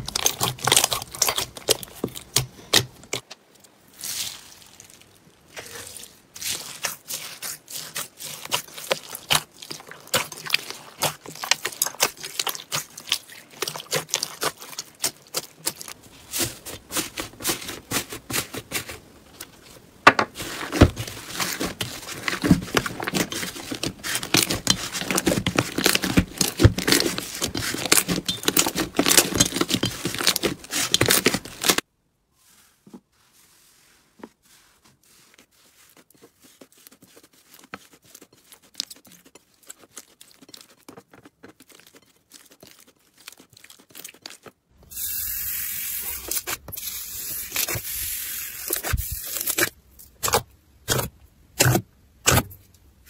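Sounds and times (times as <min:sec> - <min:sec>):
crunchy slime crackling: 0:00.0 - 0:03.2, 0:03.8 - 0:31.8, 0:35.2 - 0:44.6
slime squishes: 0:00.0 - 0:31.8, 0:33.4 - 0:44.8.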